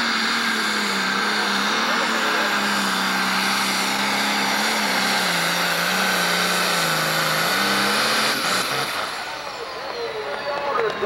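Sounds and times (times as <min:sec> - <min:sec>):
diesel engine running under load: 0:00.0 - 0:11.0.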